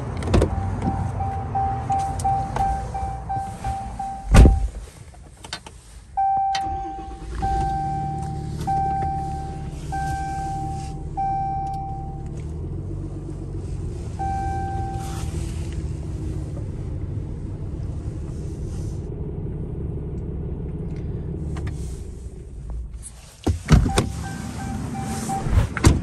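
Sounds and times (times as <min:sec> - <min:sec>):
rapid dashboard chimes: 0:00.5 - 0:04.8, 0:06.2 - 0:12.3, 0:14.2 - 0:15.2, 0:23.8 - 0:25.5
door slamming shut: 0:04.3 - 0:04.7
truck engine starting and idling: 0:05.7 - 0:26.0.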